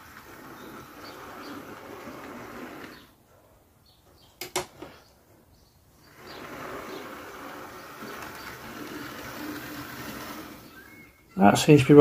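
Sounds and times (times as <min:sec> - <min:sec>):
model train motor humming: 0:00.0 - 0:03.1, 0:06.0 - 0:11.4.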